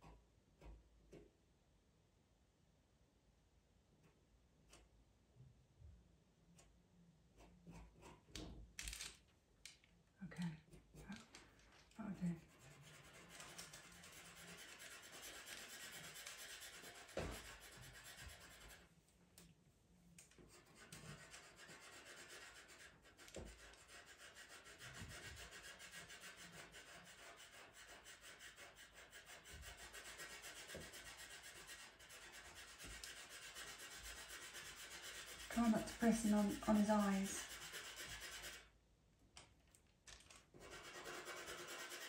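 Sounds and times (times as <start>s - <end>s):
pencil scratching on paper: 7.3s - 8.4s, 12.0s - 19.0s, 20.3s - 38.8s, 40.6s - 42.0s.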